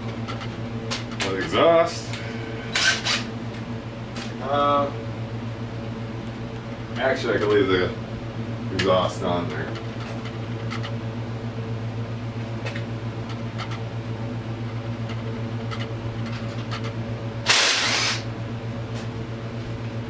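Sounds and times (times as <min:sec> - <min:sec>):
heater fan humming: 0:00.0 - 0:20.0
loud hiss: 0:17.4 - 0:18.3.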